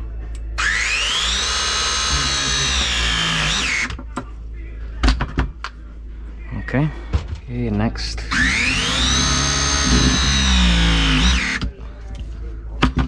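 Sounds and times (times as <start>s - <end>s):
press tool motor whining: 0.6s - 4.0s, 8.3s - 11.7s.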